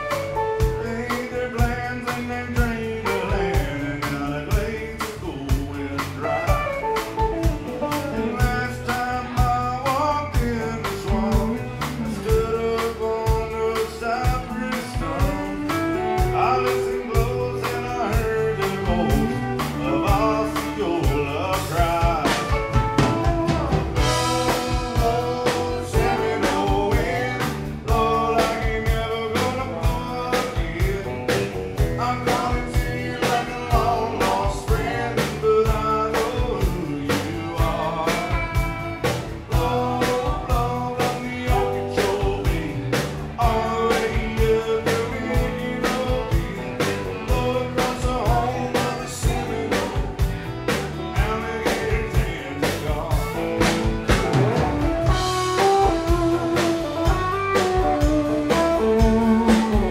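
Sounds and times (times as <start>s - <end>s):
live country band playing: 0.0s - 59.9s
person singing: 0.0s - 59.9s.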